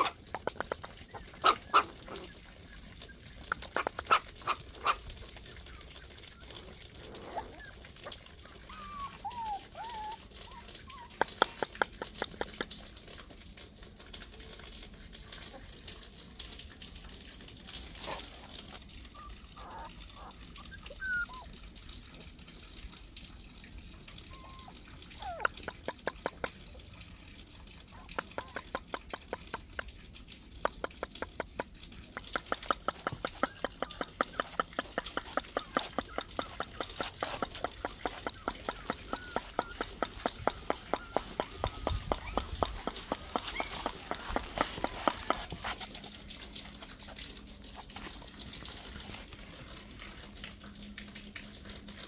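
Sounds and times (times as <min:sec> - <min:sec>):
person making tongue clicks: 0:00.1 - 0:01.1, 0:03.4 - 0:04.8, 0:11.1 - 0:12.8, 0:25.2 - 0:26.6, 0:28.1 - 0:30.0, 0:30.6 - 0:45.9
puppy squeaks: 0:07.3 - 0:11.8, 0:19.2 - 0:21.5, 0:24.3 - 0:25.6, 0:33.2 - 0:45.5.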